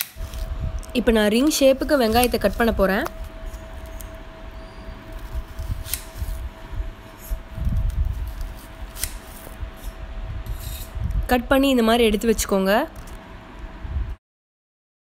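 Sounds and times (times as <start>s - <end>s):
knife slicing onion: 5.2s - 6.4s, 7.0s - 11.0s.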